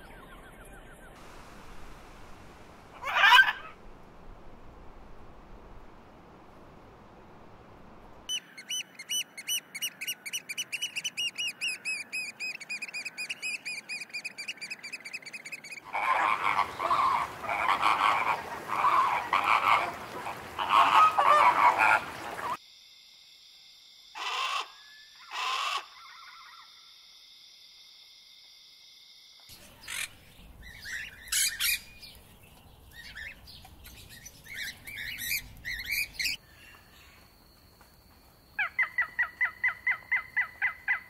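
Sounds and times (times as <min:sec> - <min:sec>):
parrot chirping: 0:08.3 - 0:15.8, 0:29.6 - 0:32.0, 0:33.0 - 0:36.4
flamingo flock honking: 0:15.8 - 0:22.6.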